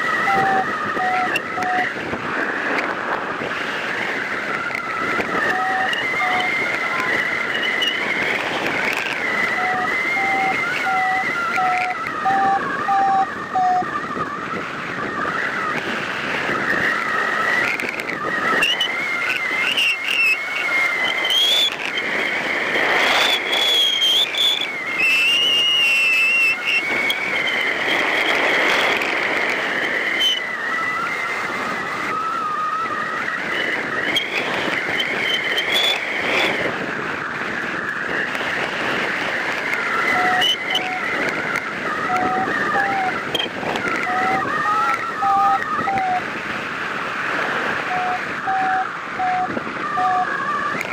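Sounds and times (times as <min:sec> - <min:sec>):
wavering high whistle: 0:00.0 - 0:02.1, 0:03.8 - 0:15.8, 0:16.4 - 0:36.7, 0:37.5 - 0:46.3, 0:47.7 - 0:50.9
wind rushing over camera: 0:00.0 - 0:50.9
evenly spaced beeps: 0:00.1 - 0:01.9, 0:05.4 - 0:08.0, 0:09.6 - 0:13.9, 0:41.9 - 0:46.2, 0:47.9 - 0:50.4.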